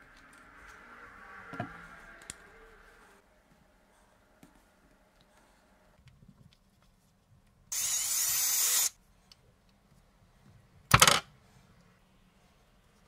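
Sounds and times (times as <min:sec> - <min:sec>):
power drill boring into plastic: 0:07.7 - 0:08.9.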